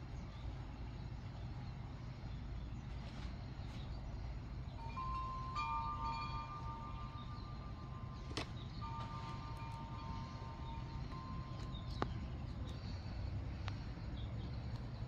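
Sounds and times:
steady low rumble: 0.0s - 15.0s
ringing chime tones: 4.7s - 12.4s.

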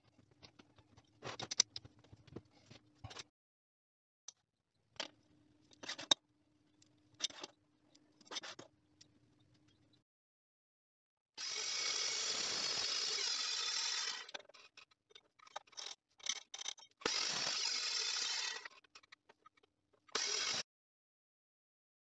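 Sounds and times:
chop saw grinding through steel: 11.4s - 14.3s, 17.1s - 18.7s, 20.2s - 20.6s.

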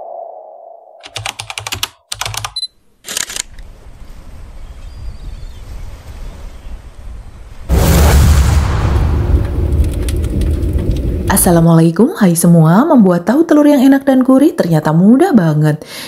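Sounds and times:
rapid keyboard-like clicks: 1.0s - 3.4s.

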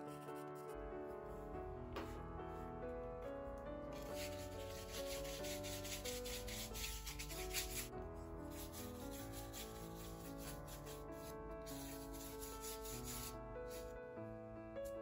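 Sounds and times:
soft background music: 0.0s - 15.0s
paintbrush scrubbing strokes: 4.0s - 7.9s, 8.5s - 13.9s.

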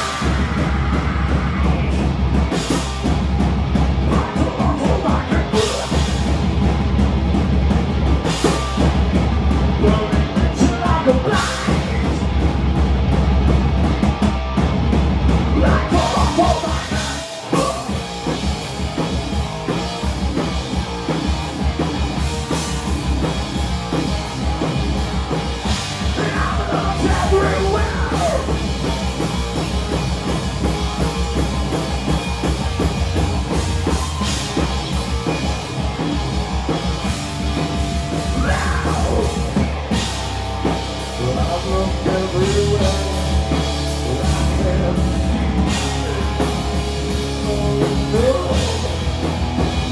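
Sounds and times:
bass guitar: 0.0s - 49.9s
distorted electric guitars: 0.0s - 49.9s
drum kit: 0.0s - 49.9s.

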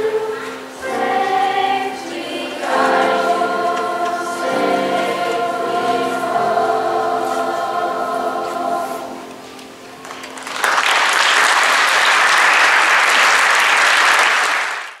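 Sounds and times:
children's choir singing: 0.0s - 10.0s
audience applause: 10.0s - 15.0s.

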